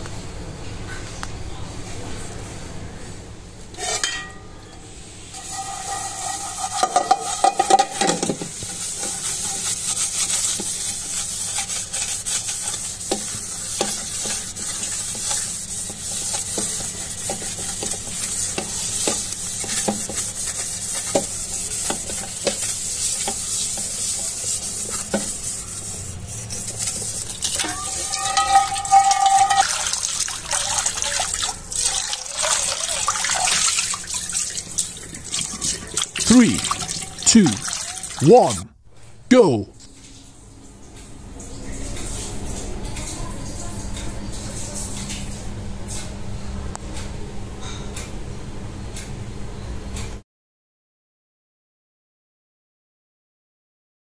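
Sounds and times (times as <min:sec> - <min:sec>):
scrub pad scouring steel pan: 0:05.3 - 0:38.2.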